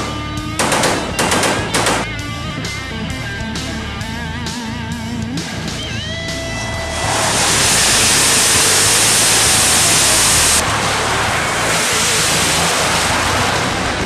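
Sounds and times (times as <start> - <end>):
jet engines roaring: 5.7 - 14.0.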